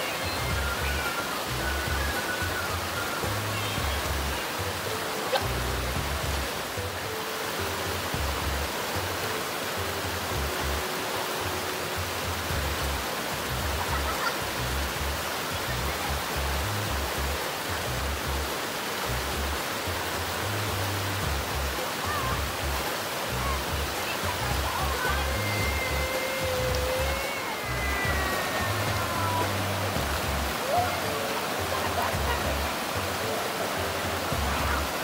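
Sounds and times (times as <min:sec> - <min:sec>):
flowing water hiss: 0:00.0 - 0:35.0
music with low bass line: 0:05.5 - 0:06.6, 0:28.9 - 0:30.6, 0:32.0 - 0:33.2, 0:33.8 - 0:35.0.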